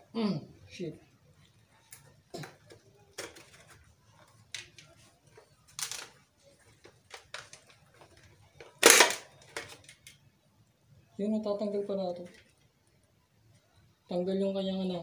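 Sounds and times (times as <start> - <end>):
plastic helmet clicks and rustles: 1.4 - 10.3.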